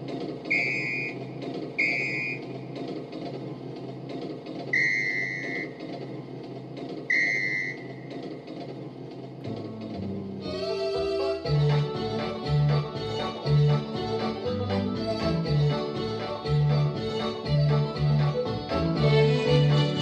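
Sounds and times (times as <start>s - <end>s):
steady rumbling hiss: 0.0s - 20.0s
train whistle toots: 0.5s - 2.5s, 4.7s - 5.8s, 7.1s - 8.0s
keyboard song accompaniment: 9.6s - 20.0s.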